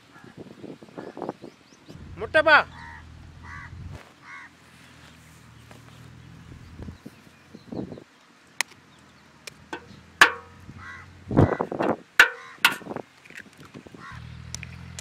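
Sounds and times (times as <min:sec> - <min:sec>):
knife tapping eggshells: 0:12.2 - 0:12.9.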